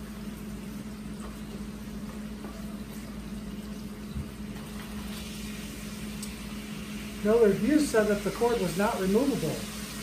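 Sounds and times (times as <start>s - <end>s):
low hum and hiss: 0.0s - 10.0s.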